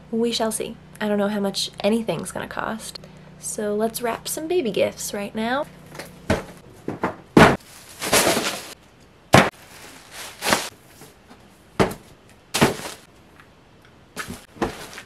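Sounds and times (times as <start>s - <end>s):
items thudding onto bed: 6.3s - 10.7s, 11.8s - 13.1s, 14.2s - 15.0s
plastic bag rustling: 7.5s - 8.8s, 9.4s - 11.3s, 12.6s - 13.1s, 14.2s - 15.0s.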